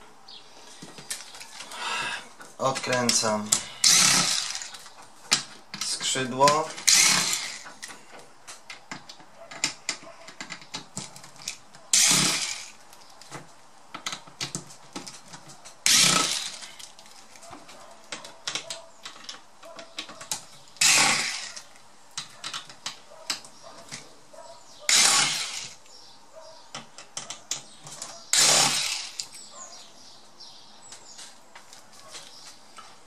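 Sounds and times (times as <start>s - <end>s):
electric screwdriver whirring: 3.8s - 4.7s, 6.8s - 7.7s, 12.0s - 12.8s, 15.9s - 16.8s, 20.8s - 21.6s, 24.9s - 25.8s, 28.3s - 29.3s.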